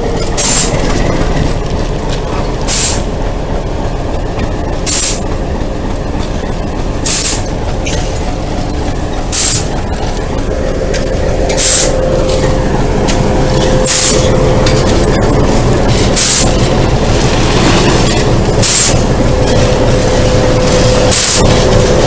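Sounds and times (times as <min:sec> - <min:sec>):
diesel locomotive rumbling: 0:00.0 - 0:22.0.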